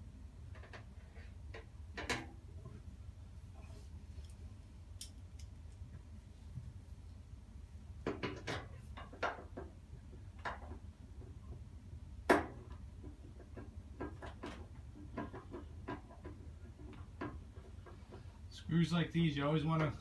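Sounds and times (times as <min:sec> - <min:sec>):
steady low hum: 0:00.0 - 0:20.0
clicks and knocks of hand work: 0:08.0 - 0:11.7, 0:12.3 - 0:18.4.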